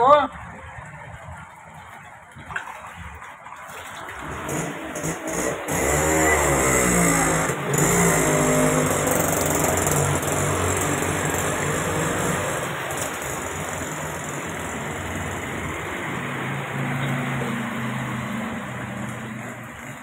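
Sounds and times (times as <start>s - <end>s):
flowing water rushing: 0.0s - 20.0s
rain: 0.0s - 20.0s
vehicle engine running: 4.2s - 20.0s.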